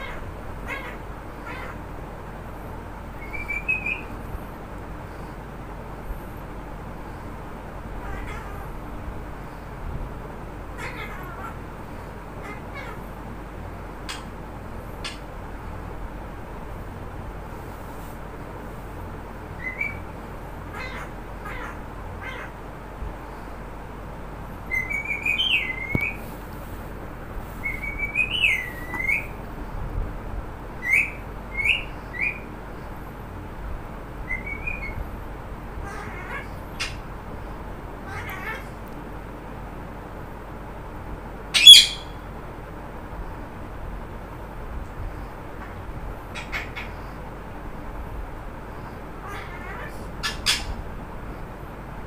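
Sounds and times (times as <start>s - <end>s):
parrot loud squawk: 0.0s - 1.8s, 8.0s - 8.7s, 10.8s - 11.6s, 12.4s - 13.1s, 20.7s - 22.6s, 35.8s - 37.0s, 38.0s - 38.8s, 41.5s - 42.2s, 46.3s - 47.0s, 49.2s - 50.8s
parrot squeaky whistled calls: 3.2s - 4.1s, 19.6s - 20.0s, 24.7s - 26.2s, 27.6s - 29.4s, 30.8s - 32.4s, 34.3s - 35.0s, 41.5s - 42.2s.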